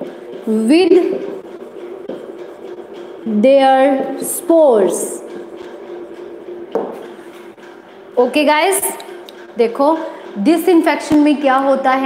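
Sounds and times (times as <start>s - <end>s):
marker scratching on whiteboard: 0.0s - 7.6s
marker tapping whiteboard: 6.7s - 7.0s.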